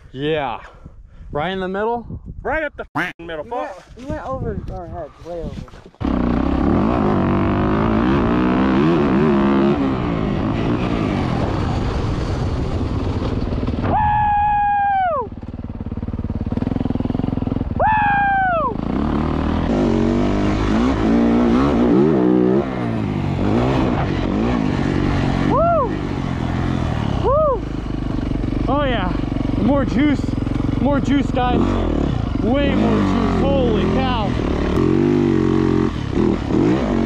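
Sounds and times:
dirt bike engine revving: 6.0 - 13.8, 15.4 - 37.0.

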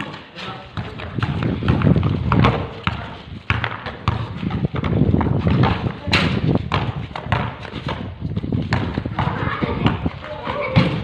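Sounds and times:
basketball bouncing on concrete: 0.0 - 11.0.

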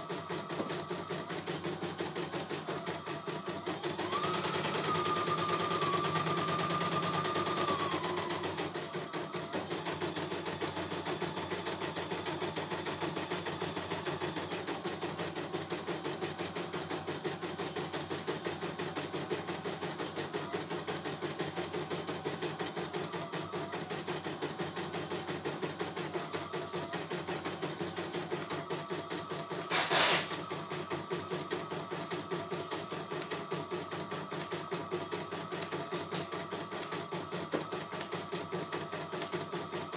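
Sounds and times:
embroidery machine needle stitching: 0.0 - 34.5
loud rasping burst: 29.7 - 30.4.

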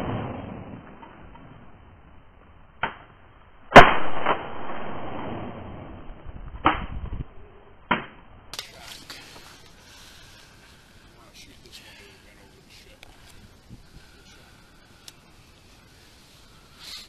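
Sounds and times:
shotgun shots: 3.7 - 5.3.

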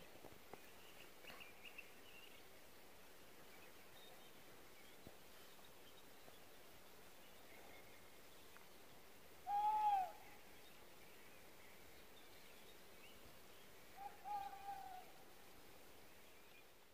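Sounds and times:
owl hooting: 9.4 - 10.2, 14.0 - 15.1.

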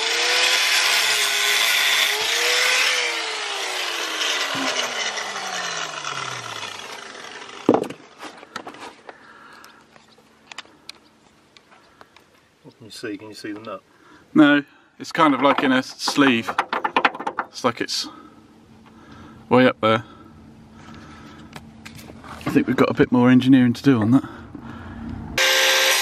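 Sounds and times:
angle grinder cutting steel: 0.0 - 8.0, 25.4 - 26.0.

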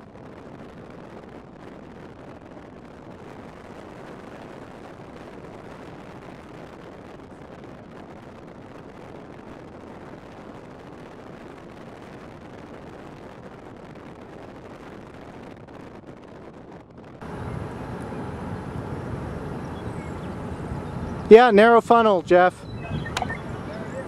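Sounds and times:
wind rumble on microphone: 0.0 - 24.0
road and engine noise in car: 17.2 - 24.0.

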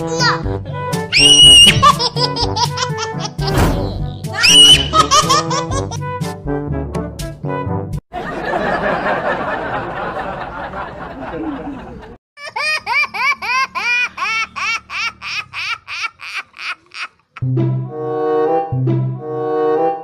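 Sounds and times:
canned crowd laughter: 8.1 - 17.1.

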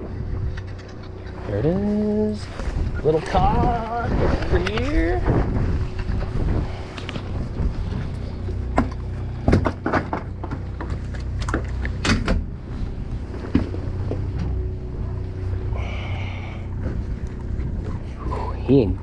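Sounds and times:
boat engine humming: 0.0 - 19.0
sharp knocks and clatters: 8.7 - 12.4.

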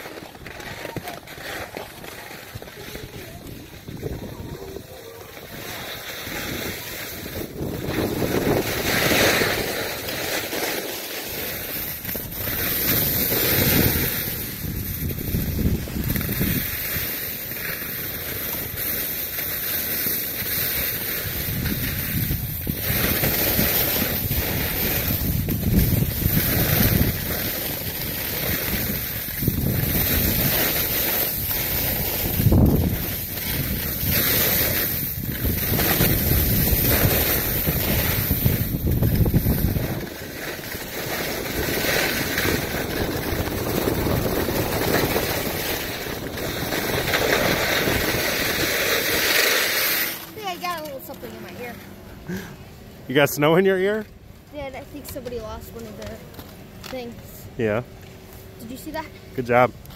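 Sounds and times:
wind buffeting microphone: 0.0 - 10.1, 11.5 - 17.2, 21.0 - 49.4
skis scraping on snow: 0.0 - 52.5, 53.1 - 59.7.

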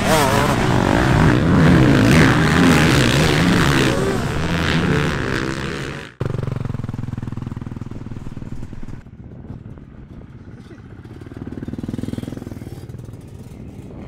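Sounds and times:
motocross bikes racing: 0.0 - 6.6, 10.2 - 14.0
dirt bike engine at low revs: 0.0 - 14.0.

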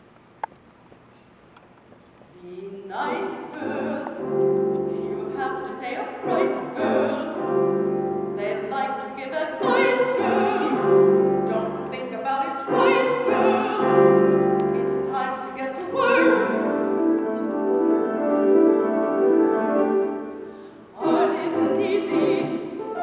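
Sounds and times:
woman singing operatically: 2.4 - 4.2, 5.0 - 7.4, 8.4 - 14.1, 14.7 - 17.3, 21.0 - 23.0
grand piano accompaniment: 3.0 - 23.0.

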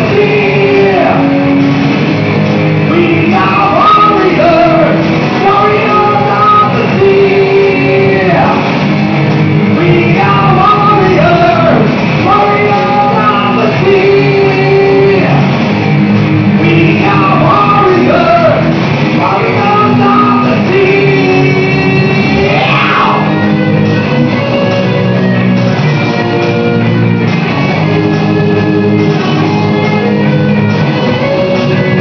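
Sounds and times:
sung and shouted vocals: 0.0 - 1.7, 2.9 - 8.7, 9.7 - 15.5, 16.6 - 23.4
electric guitars: 0.0 - 32.0
keyboard: 0.0 - 32.0.

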